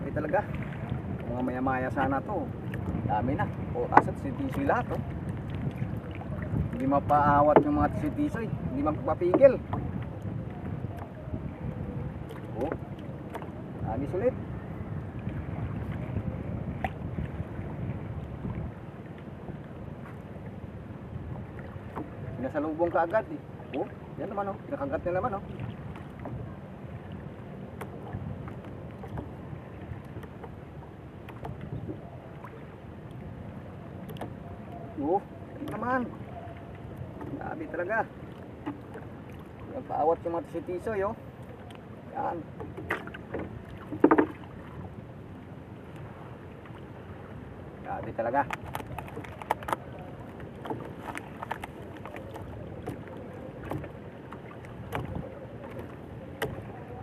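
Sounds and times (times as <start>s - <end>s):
wind and sea rumble: 0.0s - 57.0s
light clicks and taps: 34.0s - 34.4s, 48.4s - 49.8s.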